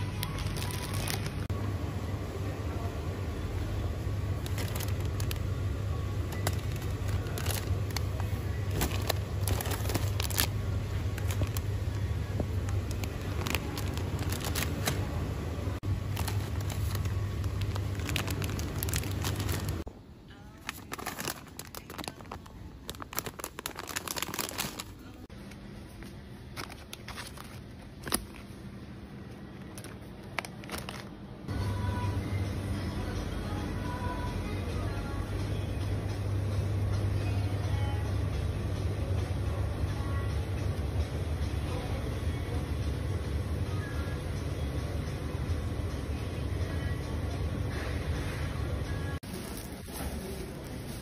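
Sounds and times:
plastic packaging crinkling: 0.0 - 1.5, 4.3 - 5.6, 6.2 - 15.2, 15.8 - 19.9, 20.6 - 25.3, 26.0 - 28.6, 29.5 - 31.2, 49.2 - 51.0
steady low hum: 0.0 - 51.0.

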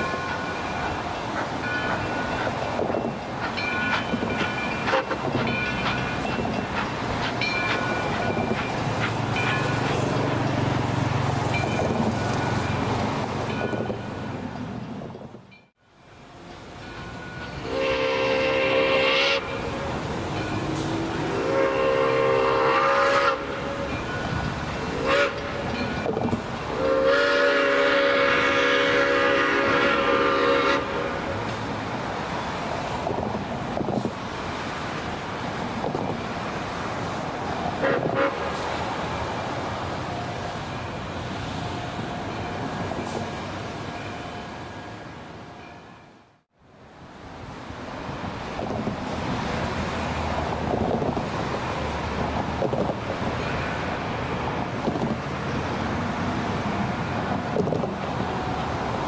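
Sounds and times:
steam locomotive rumble: 0.0 - 46.0
steam whistle chord: 21.3 - 23.7, 26.8 - 31.1.

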